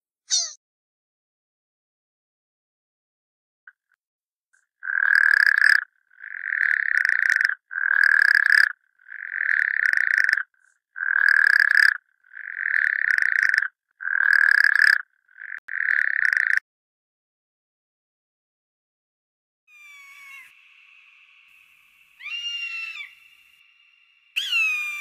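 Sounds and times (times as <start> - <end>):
frog croaking: 4.8 - 16.6, 22.2 - 25.0.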